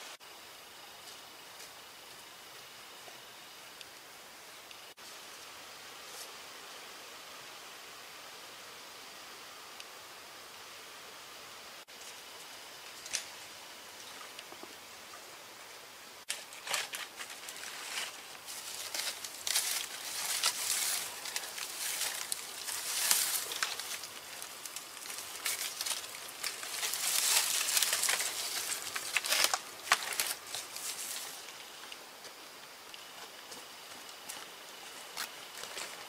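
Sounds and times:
dry leaves tearing and crackling: 16.3s - 31.6s.

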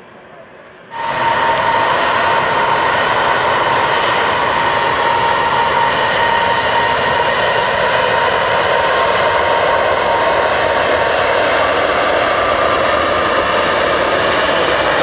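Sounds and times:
jet engine roar with whine: 0.0s - 15.0s.

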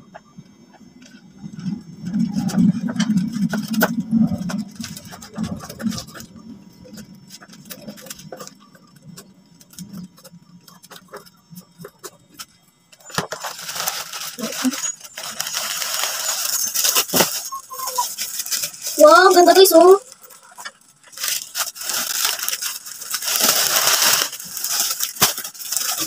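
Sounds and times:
scissors snipping plastic bag: 21.1s - 26.0s.

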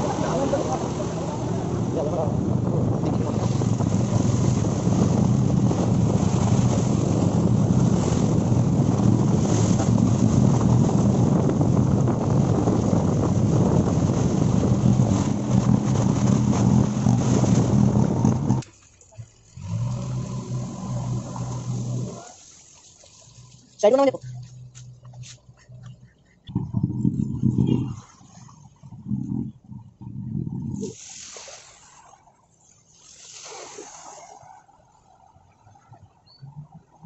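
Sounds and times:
wind on microphone: 0.0s - 18.6s, 24.0s - 32.4s
vehicle engine running: 0.0s - 22.4s, 23.3s - 30.9s.

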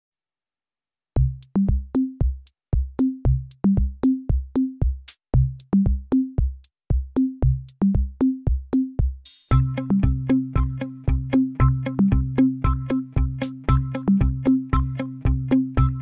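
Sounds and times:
deep bass notes: 1.2s - 1.9s, 9.5s - 16.0s
drum machine beat: 1.2s - 16.0s.

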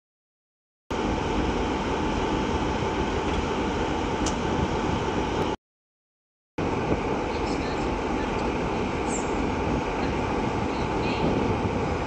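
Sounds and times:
diesel locomotive idling: 0.9s - 5.6s, 6.6s - 12.0s.

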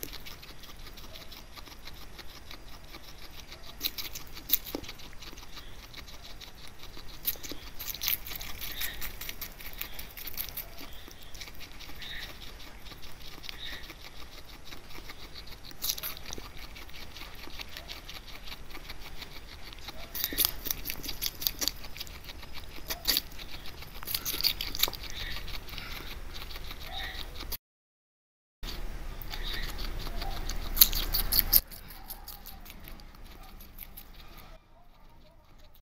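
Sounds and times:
guinea pig crunching food: 0.0s - 27.6s, 28.6s - 35.8s.

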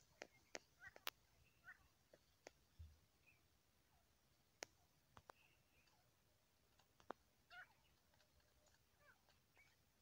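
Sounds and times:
small clicks: 0.1s - 1.2s, 6.7s - 7.2s, 7.8s - 9.8s.

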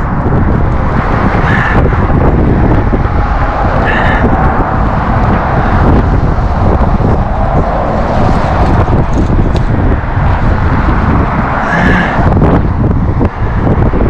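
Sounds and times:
road traffic roar: 0.0s - 14.0s
wind buffeting microphone: 0.0s - 14.0s.

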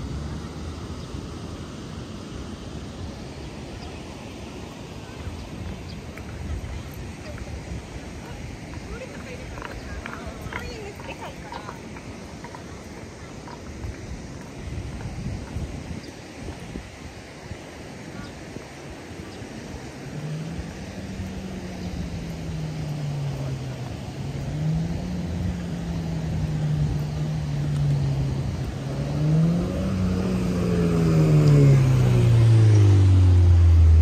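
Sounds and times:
vehicle engine passing: 19.4s - 34.0s.

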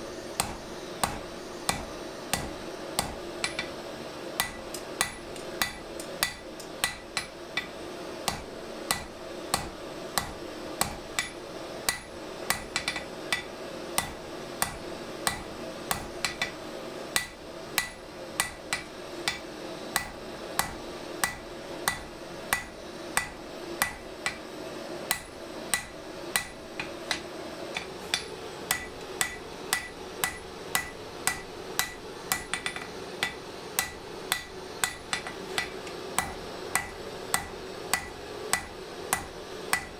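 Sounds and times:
steady background noise: 0.0s - 39.9s
hammer blows on hot steel: 0.4s - 3.8s, 17.2s - 24.5s, 25.1s - 39.9s.

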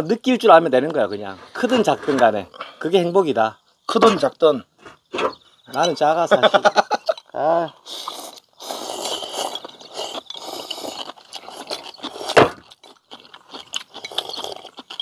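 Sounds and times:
noodles being slurped: 7.8s - 15.0s.

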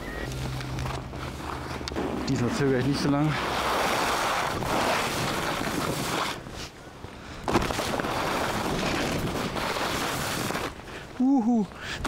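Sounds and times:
skis sliding over snow: 0.3s - 6.8s, 7.6s - 12.0s
skis landing on snow: 2.0s - 6.4s, 7.4s - 10.8s.

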